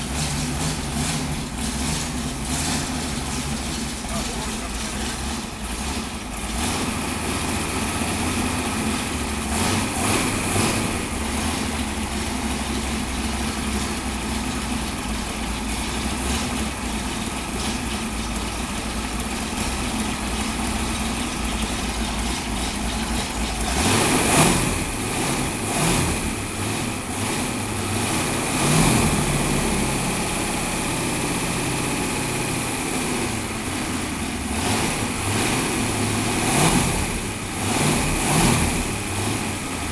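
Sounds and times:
engine idling: 0.0s - 39.9s
engine revving: 0.0s - 39.9s.

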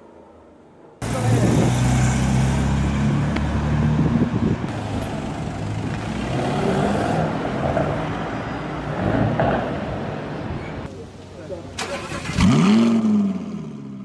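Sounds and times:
car engine pulling away: 1.0s - 8.0s, 11.8s - 14.0s
car accelerating away: 11.8s - 14.0s.

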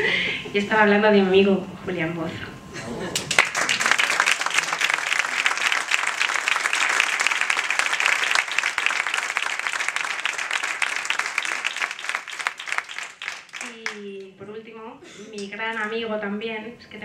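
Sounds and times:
audience applauding: 3.2s - 14.1s.

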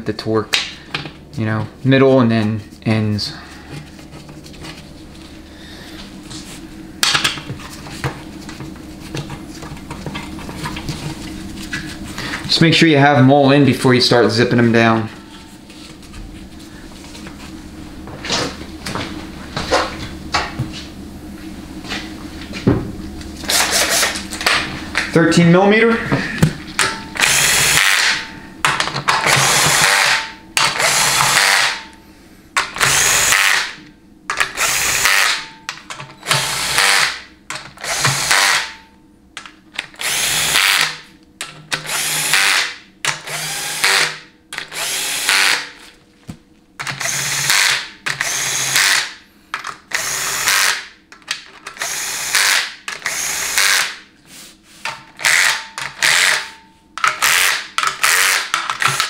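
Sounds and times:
cordless drill spinning bolts: 27.2s - 28.2s, 29.2s - 31.8s, 32.8s - 33.7s, 34.4s - 35.4s, 36.2s - 37.2s, 37.8s - 38.7s, 40.0s - 41.0s, 41.8s - 45.6s, 46.8s - 49.1s, 49.9s - 50.8s, 51.7s - 53.9s, 55.2s - 56.5s, 57.2s - 59.0s.

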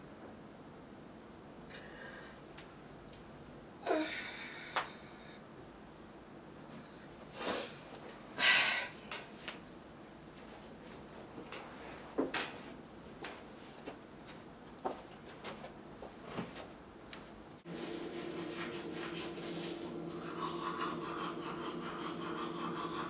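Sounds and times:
toothbrush scrubbing teeth: 17.7s - 23.0s.

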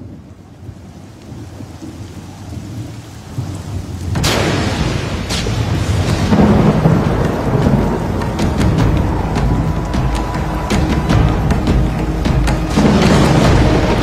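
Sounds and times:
rolling thunder: 0.0s - 14.0s
steady rain: 0.0s - 14.0s
sharp thunderclap: 3.4s - 14.0s.

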